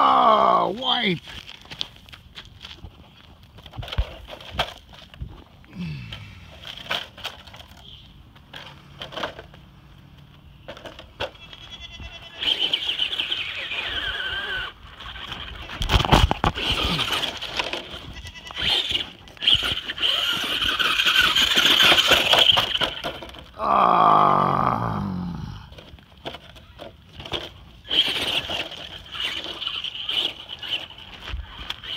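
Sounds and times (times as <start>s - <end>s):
toy truck electric motor whining: 10.7s - 23.8s, 25.8s - 31.9s.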